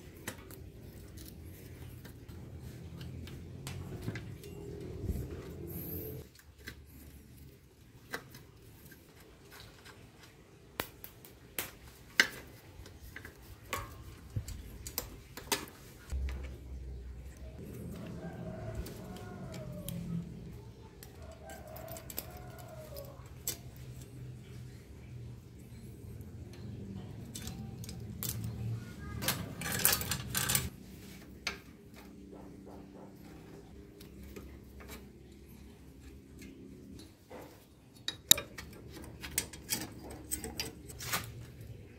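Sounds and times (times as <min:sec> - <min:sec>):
bicycle chain clinking: 0:27.2 - 0:30.7
metallic clicks and taps: 0:37.9 - 0:41.0.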